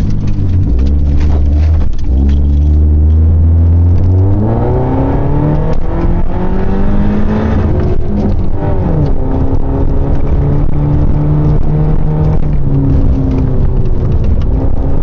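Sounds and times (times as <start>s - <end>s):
car engine droning while driving: 0.0s - 15.0s.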